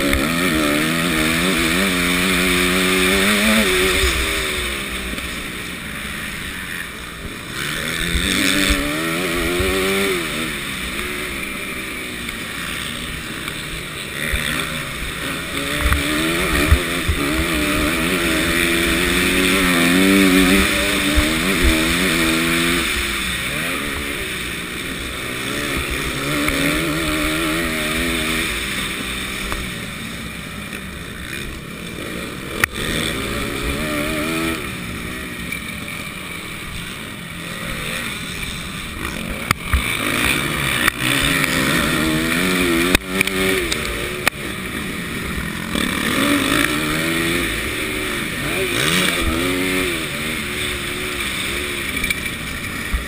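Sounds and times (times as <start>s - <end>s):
motocross bike engine revving: 0.0s - 53.0s.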